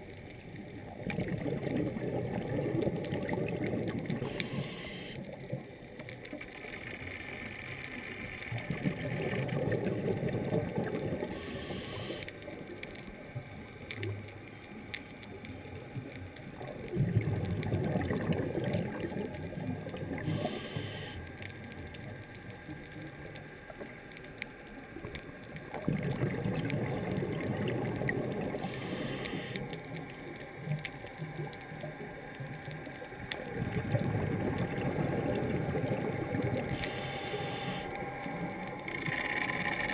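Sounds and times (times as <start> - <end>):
exhaled bubbles rushing underwater: 0.6 - 7.0, 8.5 - 14.3, 15.3 - 24.0, 25.0 - 39.9
diver breathing in hiss: 4.2 - 5.2, 11.3 - 12.3, 20.2 - 21.2, 28.6 - 29.6, 36.7 - 38.0.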